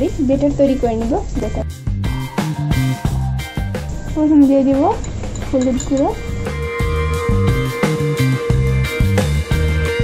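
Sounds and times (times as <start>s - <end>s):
background music with beat: 1.4s - 4.2s, 6.1s - 10.0s.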